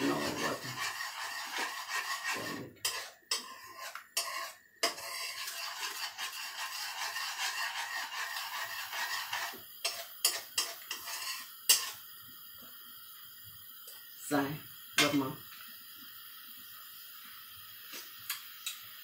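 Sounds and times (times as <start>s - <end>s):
metal spoon scraping a pan: 0.0s - 12.0s.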